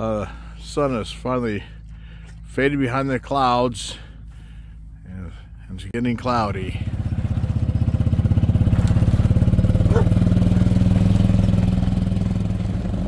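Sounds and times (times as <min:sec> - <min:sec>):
small gas engine running: 0:06.6 - 0:13.0.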